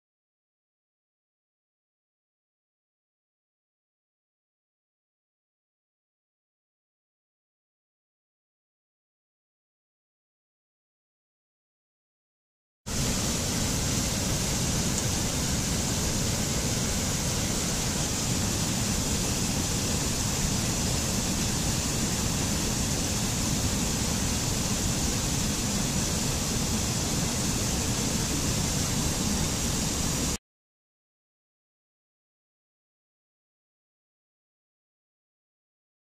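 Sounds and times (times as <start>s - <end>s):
stream rushing over rocks: 12.9s - 30.4s.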